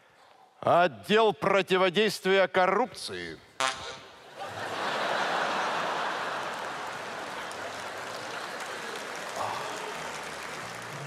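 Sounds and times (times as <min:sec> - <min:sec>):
audience laughing and applauding: 0:04.3 - 0:11.0.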